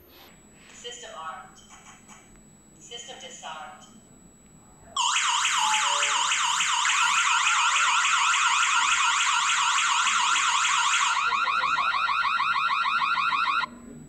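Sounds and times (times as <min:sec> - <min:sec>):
electronic alarm siren wailing: 0:05.0 - 0:13.7.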